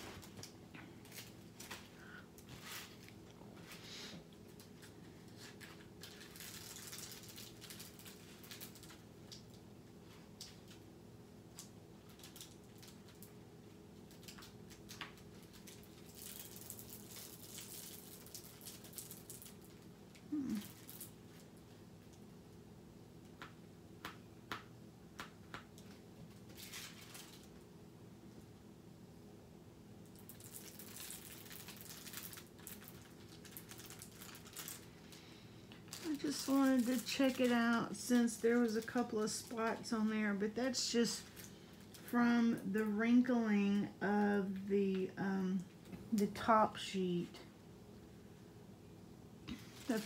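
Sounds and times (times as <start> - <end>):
plastic sheet crinkling: 0.0 - 10.8, 11.5 - 21.8, 25.2 - 27.7, 30.1 - 43.3, 49.5 - 50.0.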